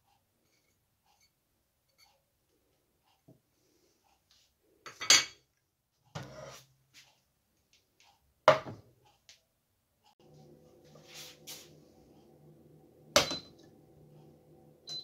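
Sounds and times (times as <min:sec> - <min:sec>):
pot knocking on wooden board: 0:13.2 - 0:13.5.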